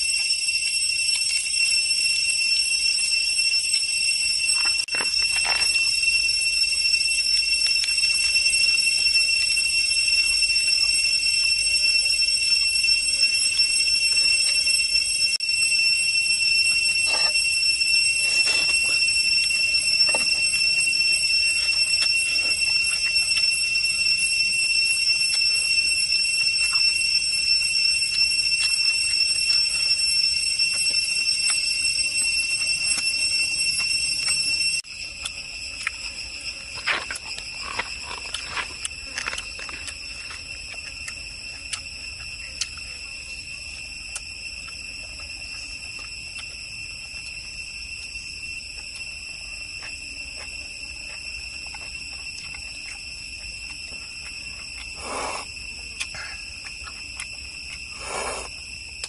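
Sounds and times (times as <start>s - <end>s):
high-pitched insect drone: 0.0s - 59.0s
crunching and tearing of chicken: 36.7s - 43.0s.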